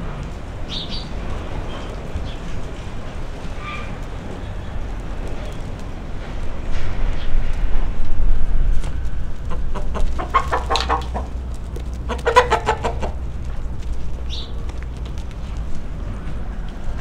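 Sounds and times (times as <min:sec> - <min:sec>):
hens clucking: 0:09.3 - 0:17.0.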